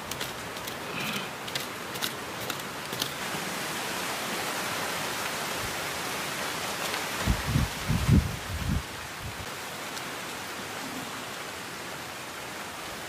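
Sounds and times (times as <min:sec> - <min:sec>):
steady outdoor hiss: 0:00.0 - 0:13.0.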